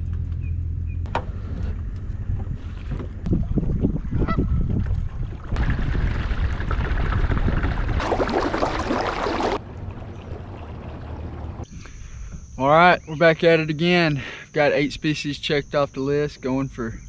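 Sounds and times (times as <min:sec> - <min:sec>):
low rumble: 0:00.0 - 0:11.8
water splashing along kayak hull: 0:04.7 - 0:11.7.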